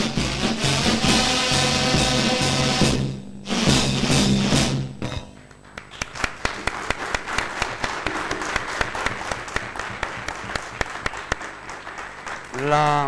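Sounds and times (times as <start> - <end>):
crowd applause: 5.6 - 13.0.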